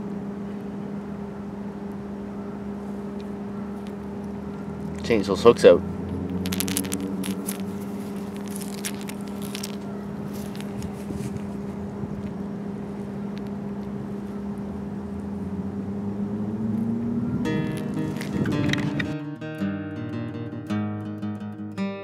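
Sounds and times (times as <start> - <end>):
low mechanical hum: 0.0 - 19.2
metallic clicks and scrapes: 6.1 - 11.0.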